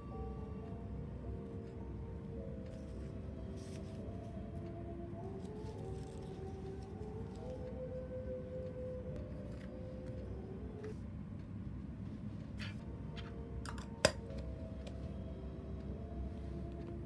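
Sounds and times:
soft background music: 0:00.0 - 0:17.0.

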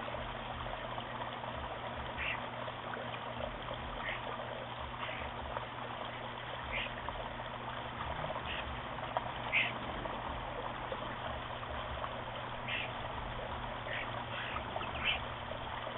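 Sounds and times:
water trickling over rocks: 0:00.0 - 0:15.9.

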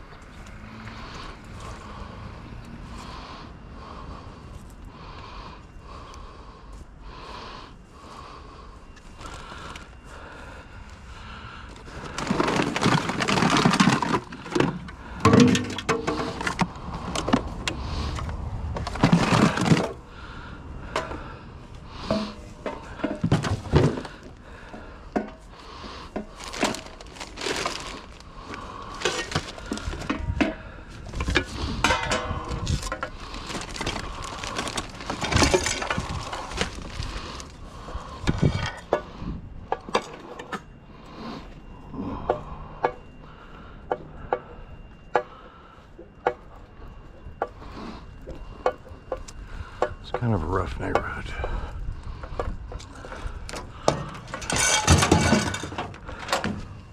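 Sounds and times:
household items clattering: 0:11.8 - 0:20.0, 0:22.0 - 0:24.4, 0:25.2 - 0:37.6, 0:52.4 - 0:56.7.

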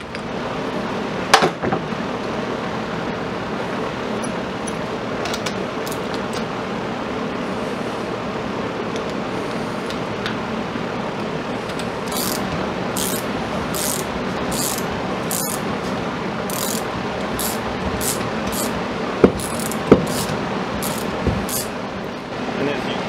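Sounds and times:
steady shop hum: 0:00.0 - 0:23.0
hand ratchet clicking: 0:12.1 - 0:15.6, 0:16.5 - 0:18.8, 0:19.4 - 0:21.7.

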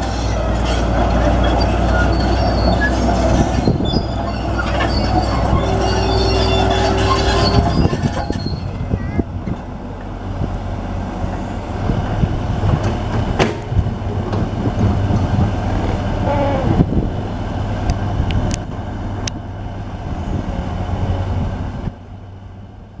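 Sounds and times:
steel tracks clanking and squealing: 0:00.0 - 0:10.2, 0:11.2 - 0:16.8
diesel engine droning: 0:00.0 - 0:23.0.

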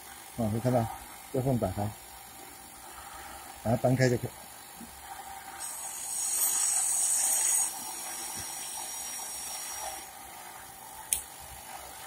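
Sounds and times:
high-pitched hiss: 0:05.5 - 0:10.1.

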